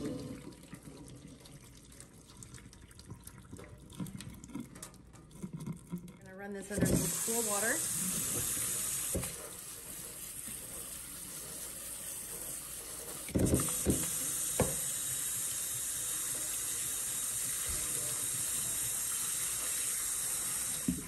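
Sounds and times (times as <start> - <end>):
faucet water running into strainer: 6.6 - 21.0.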